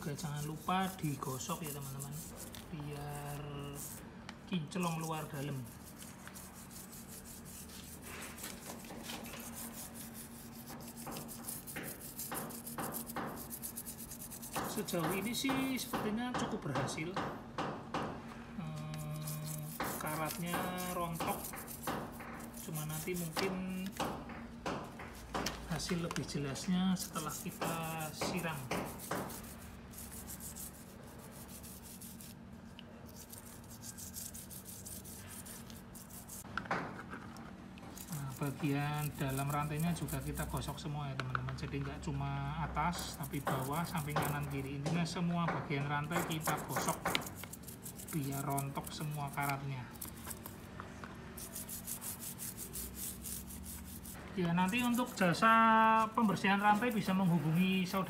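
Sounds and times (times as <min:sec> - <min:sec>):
toothbrush scrubbing metal chain: 0:00.0 - 0:04.0, 0:04.8 - 0:16.0, 0:18.9 - 0:24.1, 0:27.0 - 0:32.4, 0:33.1 - 0:36.4, 0:38.0 - 0:40.8, 0:42.8 - 0:44.7, 0:46.0 - 0:50.6, 0:51.4 - 0:58.0.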